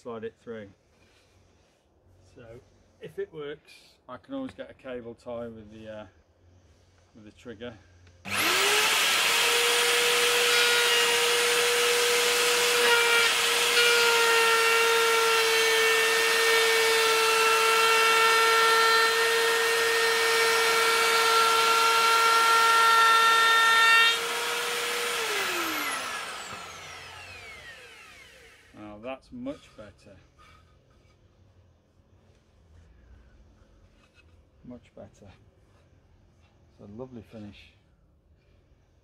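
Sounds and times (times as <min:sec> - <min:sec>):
router whining cutting wood: 0:08.3 - 0:28.8
router winding down: 0:08.3 - 0:28.8.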